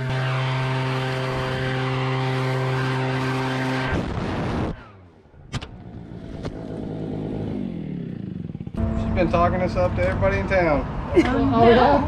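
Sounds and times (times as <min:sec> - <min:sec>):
leaf blower running: 0:00.0 - 0:04.6.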